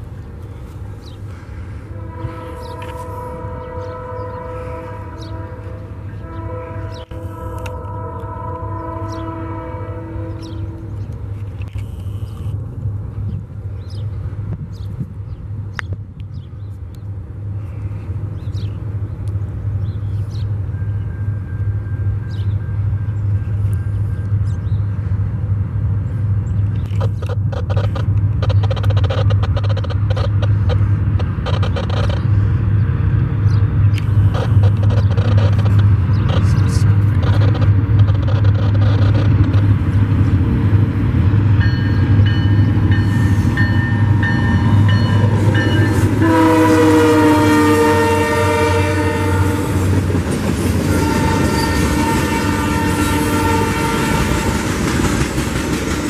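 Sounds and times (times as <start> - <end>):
diesel locomotive engine drone: 0.0 - 56.0
locomotive horn: 1.8 - 11.1, 43.2 - 50.0, 50.8 - 54.8
train wheels clicking over rail joints: 26.5 - 32.5, 33.5 - 40.9, 54.1 - 56.0.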